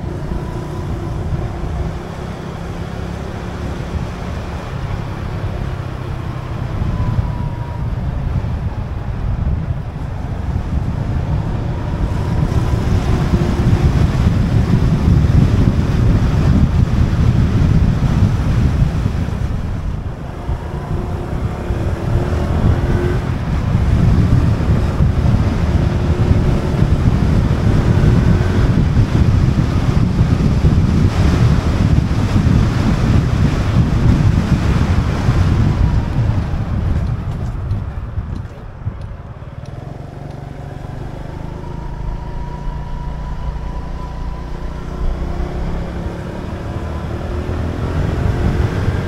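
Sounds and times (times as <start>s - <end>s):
wind buffeting microphone: 0.0s - 49.0s
faint engine note: 39.7s - 47.6s.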